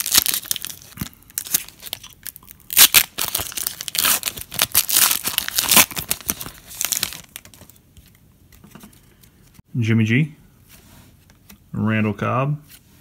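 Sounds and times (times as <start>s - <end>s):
foil wrapper tearing and crinkling: 0.0s - 7.7s.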